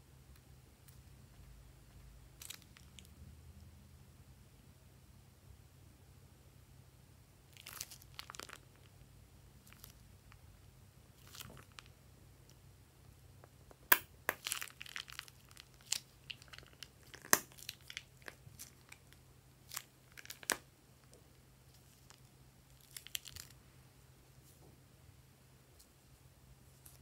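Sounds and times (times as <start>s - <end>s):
plastic bag crinkling: 22.8s - 23.6s.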